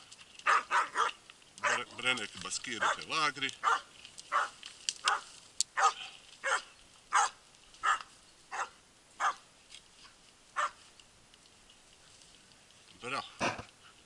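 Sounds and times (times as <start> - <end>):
dog barking: 0.4 - 1.9, 2.8 - 9.4, 10.6 - 10.8.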